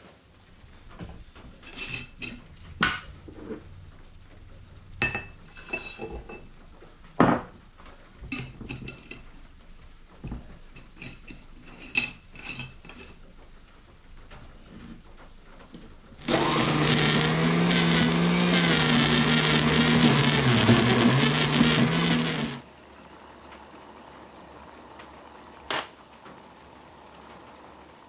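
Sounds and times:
crockery clinking on wooden table: 7.2 - 7.6.

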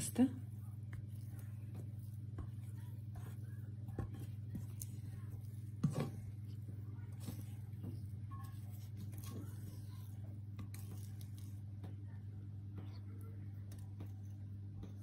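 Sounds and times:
steady low hum: 0.0 - 15.0
spatula scraping bowl: 0.4 - 11.7.

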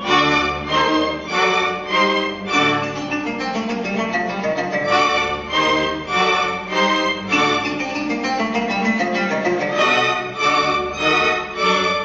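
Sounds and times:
string orchestra playing chords: 0.0 - 12.0.

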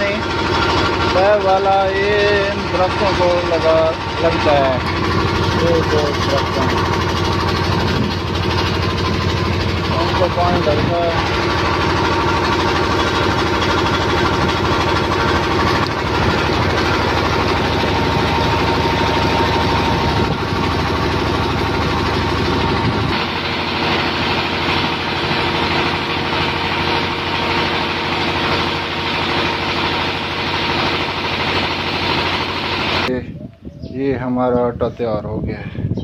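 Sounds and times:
diesel engine running: 0.0 - 33.1.

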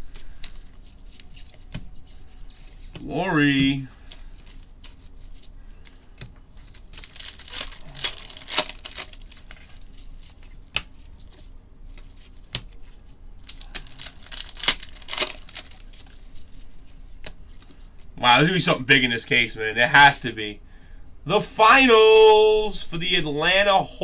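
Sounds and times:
wrappers crinkling: 0.0 - 18.0
card packs being torn open: 6.6 - 11.0, 11.9 - 16.2.

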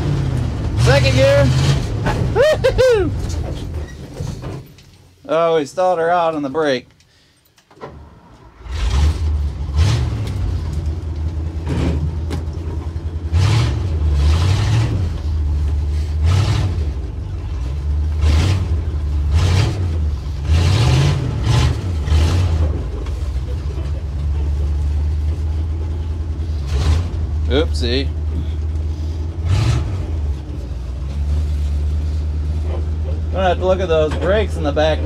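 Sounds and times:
truck engine revving: 0.0 - 4.7, 7.9 - 35.0.

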